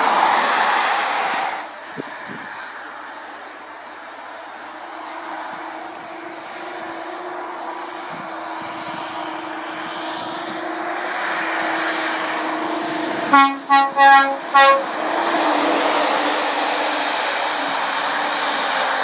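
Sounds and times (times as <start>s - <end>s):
lorry tyres hissing on wet road: 0.0s - 19.0s
short horn toots: 13.3s - 14.9s.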